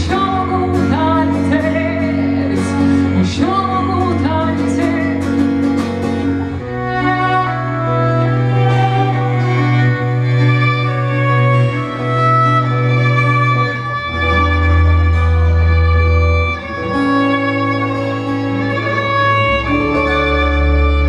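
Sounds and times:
low held bass notes: 0:00.0 - 0:21.0
strummed acoustic guitar: 0:00.0 - 0:21.0
violin melody: 0:00.0 - 0:21.0.

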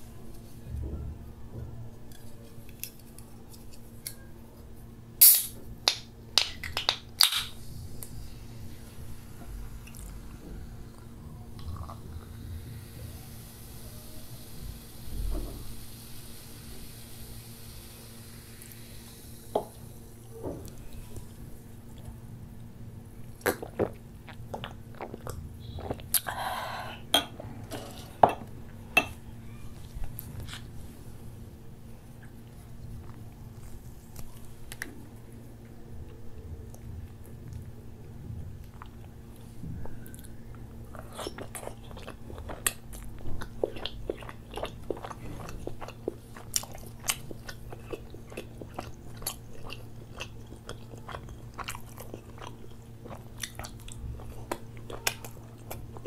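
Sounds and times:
can opening crack and hiss: 0:05.2 - 0:05.6, 0:06.7 - 0:08.1.

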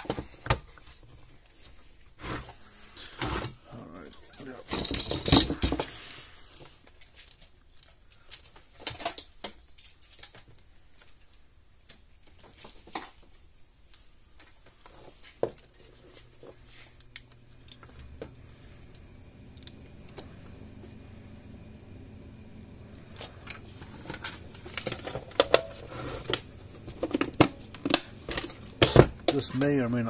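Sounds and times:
faint low hum: 0:00.1 - 0:30.0
wire leads clicking and rattling: 0:04.0 - 0:20.6, 0:22.9 - 0:30.0.

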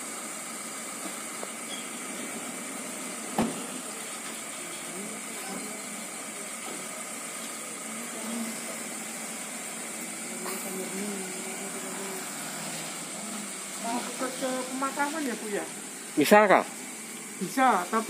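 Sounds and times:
faint voices: 0:03.6 - 0:15.1.

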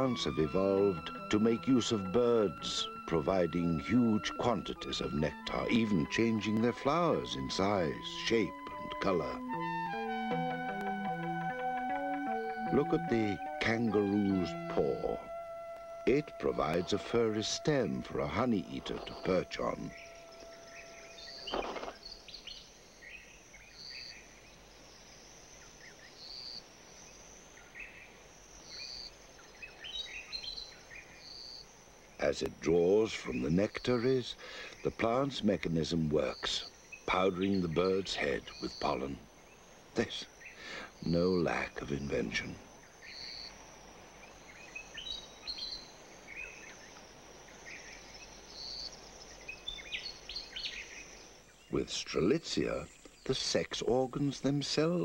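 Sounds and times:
bird chirps: 0:00.0 - 0:55.0
faint high hiss: 0:00.0 - 0:55.0
high insect drone: 0:00.0 - 0:55.0
bird chirps and calls: 0:44.2 - 0:47.0, 0:47.6 - 0:52.0.

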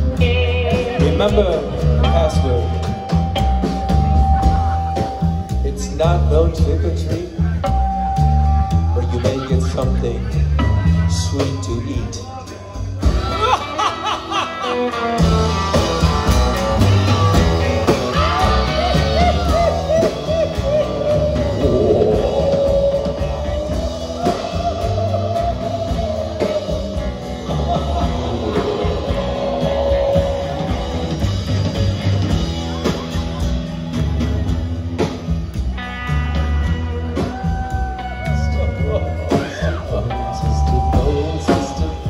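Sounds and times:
rock and roll band playing: 0:00.0 - 0:42.0
man singing: 0:05.6 - 0:07.9, 0:08.6 - 0:13.5, 0:17.0 - 0:31.5, 0:37.2 - 0:42.0.

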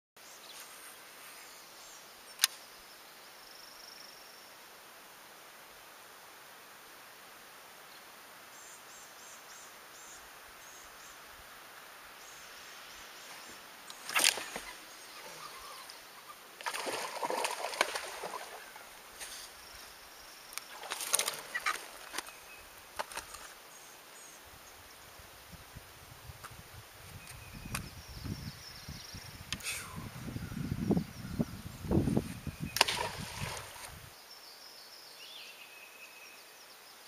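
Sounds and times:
fish splashing at water surface: 0:16.6 - 0:18.7, 0:32.8 - 0:33.9.

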